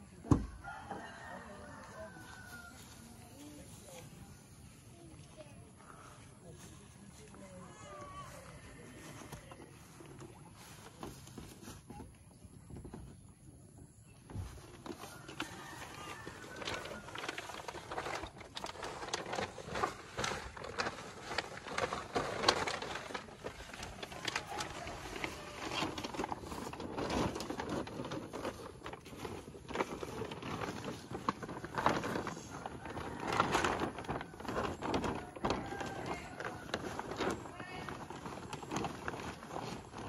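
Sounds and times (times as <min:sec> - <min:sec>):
plastic tarp crinkling: 0:14.1 - 0:40.0
bags rustling and bumping: 0:14.4 - 0:40.0.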